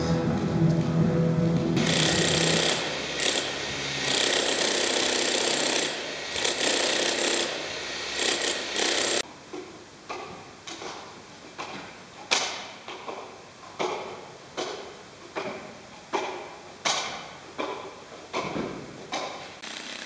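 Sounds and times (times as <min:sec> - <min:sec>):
jackhammer pounding concrete: 0:01.8 - 0:09.2, 0:19.6 - 0:20.0
juggling clubs slapping into hands: 0:13.8 - 0:19.6.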